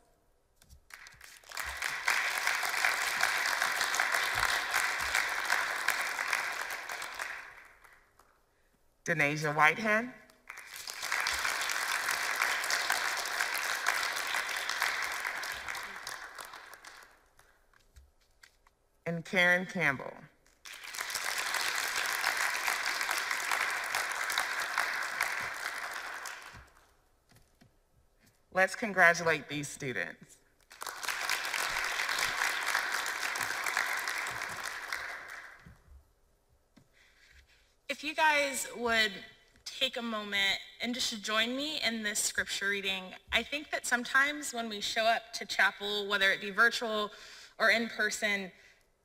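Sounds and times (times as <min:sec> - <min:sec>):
audience applauding: 0:00.9 - 0:08.2, 0:10.5 - 0:17.2, 0:20.6 - 0:26.9, 0:30.7 - 0:35.8.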